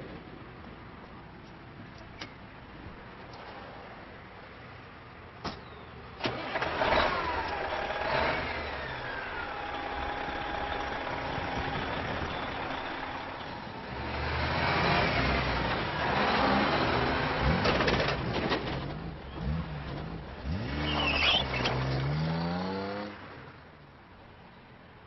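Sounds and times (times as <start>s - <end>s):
vehicle engine starting and running: 6.2s - 23.6s.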